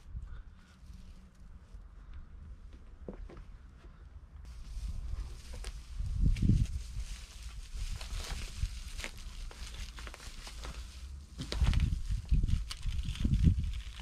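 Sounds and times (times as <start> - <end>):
foil insulation crinkling: 4.5 - 14.0.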